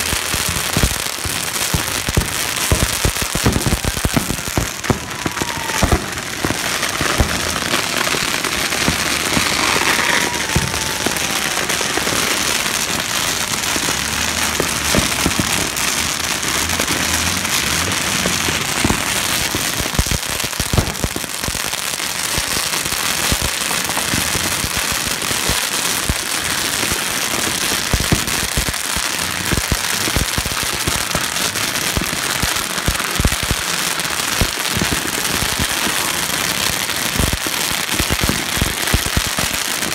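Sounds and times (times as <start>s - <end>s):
firecracker bangs: 0.0s - 26.7s
firecrackers crackling: 0.0s - 39.9s.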